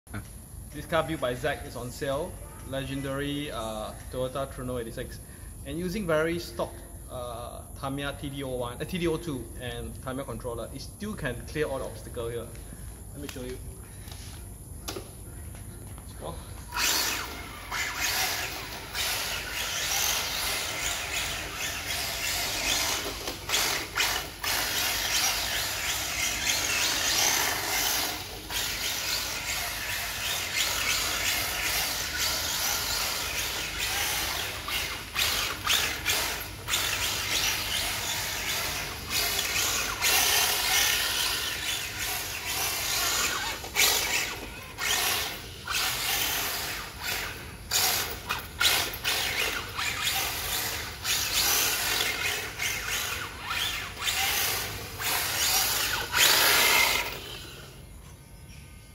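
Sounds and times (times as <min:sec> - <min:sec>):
toy car motor whirring: 0:16.6 - 0:58.0
tyres sliding on tile floor: 0:16.7 - 0:57.5.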